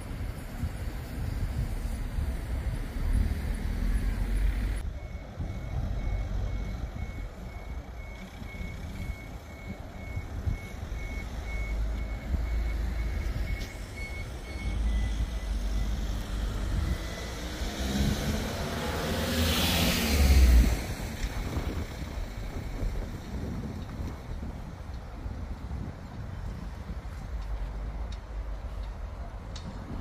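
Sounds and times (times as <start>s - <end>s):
reversing alarm beeping: 4.8s - 17.7s
vehicle passing: 14.6s - 22.6s.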